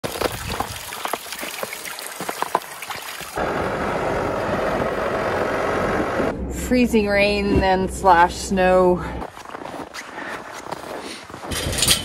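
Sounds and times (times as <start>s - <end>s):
water from hose splashing: 0.0s - 3.4s
tractor engine running: 3.2s - 9.5s.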